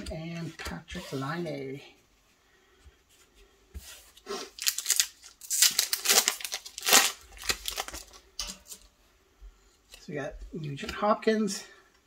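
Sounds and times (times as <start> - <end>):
plastic wrapper tearing and crinkling: 4.4 - 8.8.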